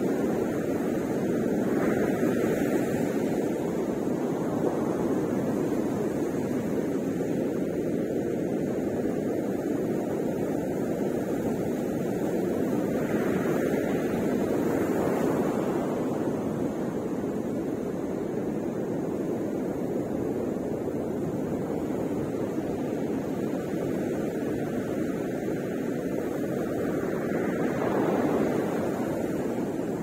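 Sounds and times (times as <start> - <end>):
ocean waves breaking: 0.0 - 7.8, 11.4 - 30.0.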